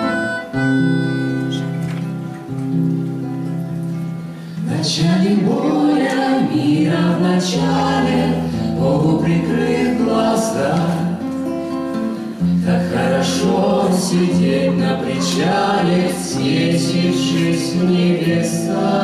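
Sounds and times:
acoustic guitar: 0:00.0 - 0:19.0
vocal ensemble singing: 0:04.6 - 0:19.0.

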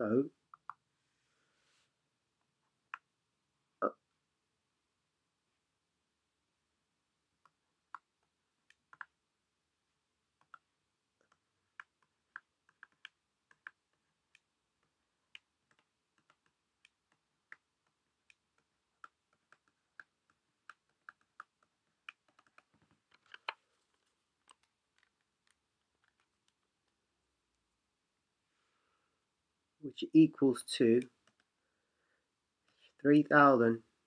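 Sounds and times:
stylus tapping tablet screen: 0:00.5 - 0:00.8, 0:07.4 - 0:09.2, 0:10.3 - 0:27.1.

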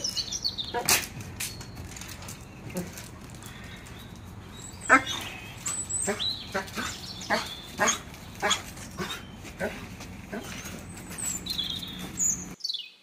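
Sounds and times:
dog yipping and barking: 0:06.0 - 0:09.2.

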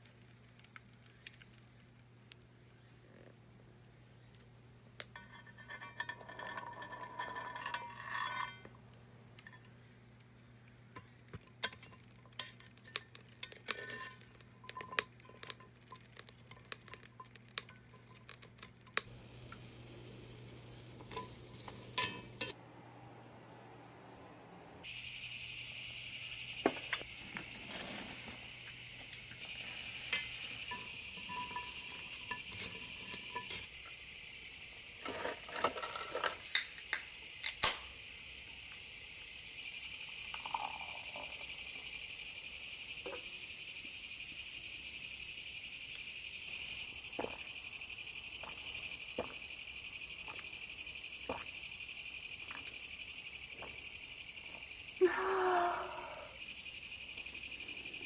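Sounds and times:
crickets and insects chirring: 0:00.0 - 0:58.0
cans and glass clinking on ice: 0:05.0 - 0:08.8, 0:11.0 - 0:19.0, 0:21.0 - 0:22.6, 0:29.2 - 0:33.7.

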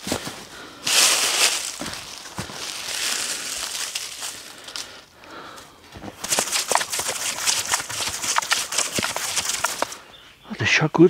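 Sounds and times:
dry leaves rustling and crunching: 0:00.0 - 0:04.9.

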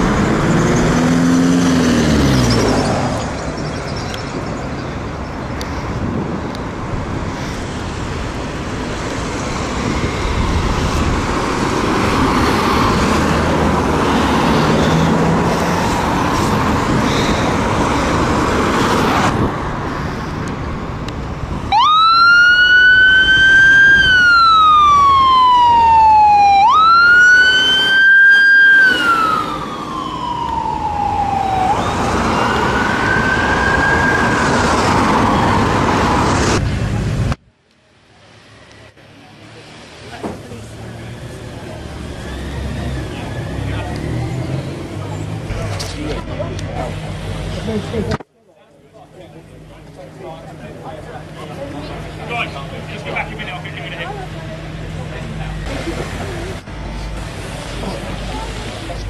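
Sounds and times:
road traffic: 0:00.0 - 0:59.0
emergency siren wailing: 0:21.6 - 0:36.2, 0:41.0 - 0:44.5.

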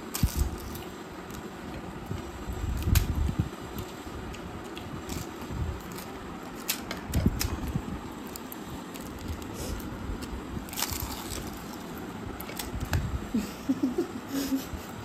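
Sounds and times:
crisp snacks crunching: 0:03.8 - 0:12.9.

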